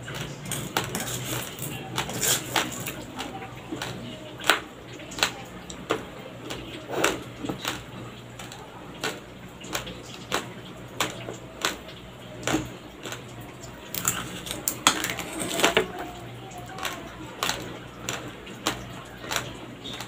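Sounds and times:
raw rice crunching when chewed: 13.9s - 16.0s.

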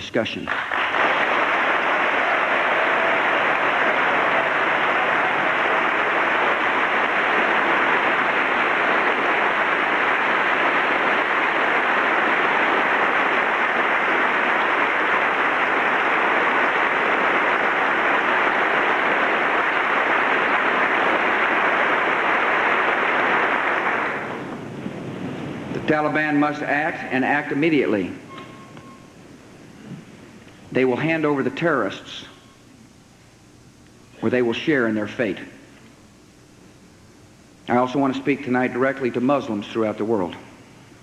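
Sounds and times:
crowd applauding: 0.5s - 24.6s.

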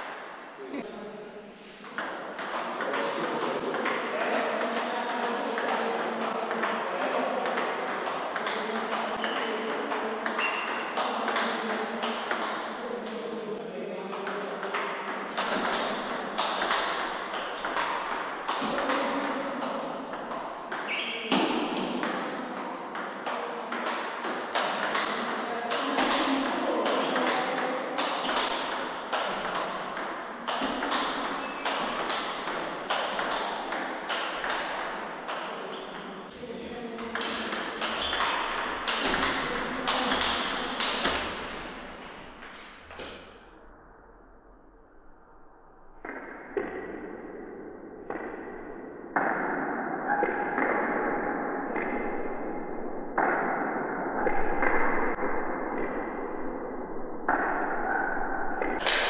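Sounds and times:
table tennis ball hitting bats: 1.8s - 13.2s, 14.1s - 43.4s, 58.6s - 59.0s.

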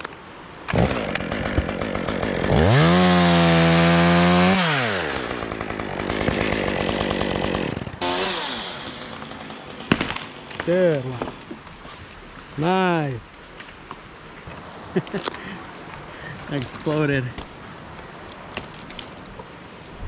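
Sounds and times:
chainsaw cutting wood: 0.7s - 11.6s.

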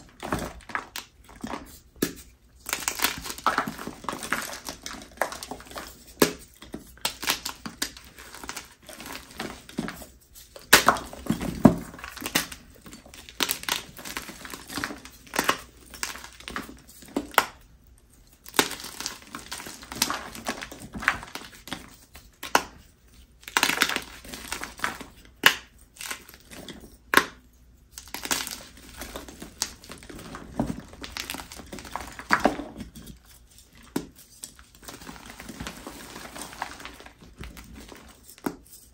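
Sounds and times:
hands crushing chalk blocks: 0.0s - 38.9s.

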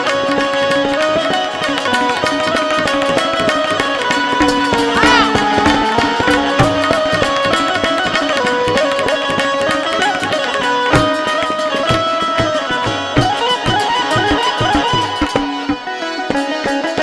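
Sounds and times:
tablas playing: 0.0s - 17.0s.

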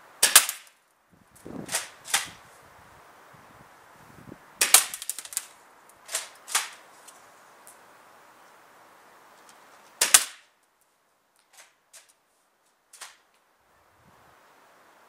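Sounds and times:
airsoft shotgun shots: 0.2s - 0.7s, 1.7s - 2.4s, 4.6s - 5.2s, 10.0s - 10.4s.

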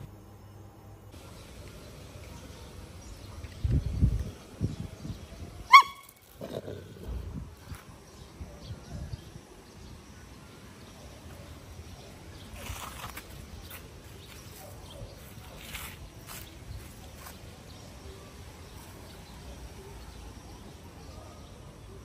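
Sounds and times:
dog yelping: 5.7s - 6.2s.

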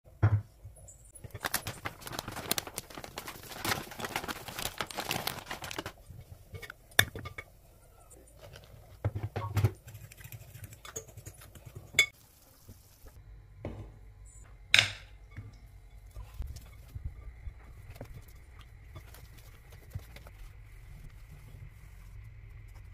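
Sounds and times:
flour sifter rattling: 1.2s - 6.2s.

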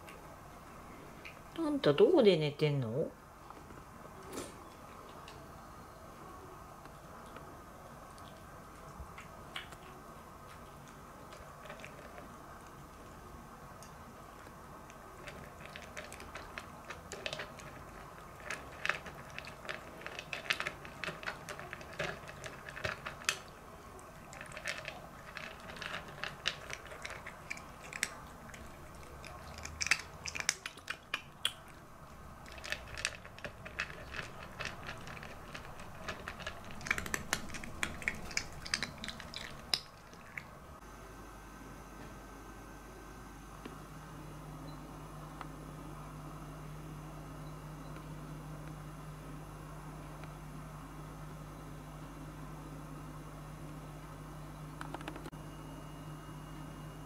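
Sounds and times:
cat crunching dry kibble: 10.5s - 13.1s, 13.8s - 40.5s.

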